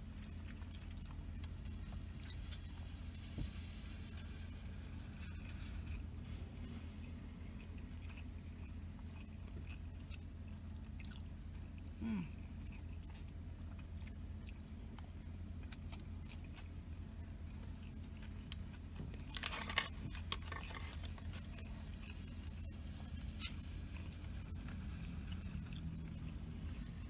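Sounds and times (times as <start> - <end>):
person chewing food: 0.0 - 27.0
steady low hum: 0.0 - 27.0
person humming mm: 12.0 - 12.4.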